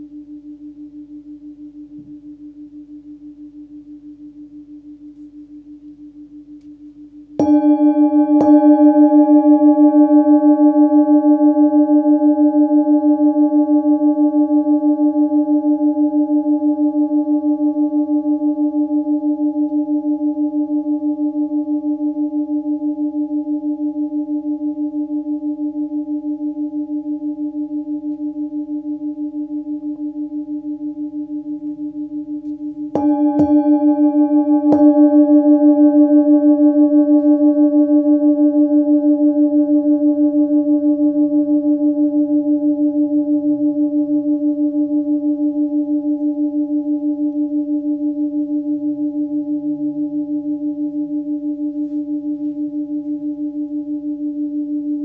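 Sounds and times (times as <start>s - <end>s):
singing bowl struck and ringing: 5.0s - 55.0s.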